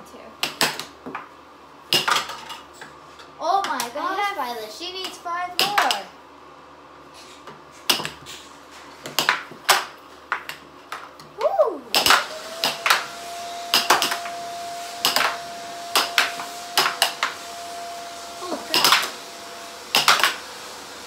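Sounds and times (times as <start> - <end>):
air hockey puck and strikers clacking: 0.4 - 1.3, 1.9 - 4.0, 4.9 - 6.1, 7.4 - 13.1, 13.7 - 14.4, 15.0 - 17.4, 18.7 - 19.2, 19.9 - 20.4.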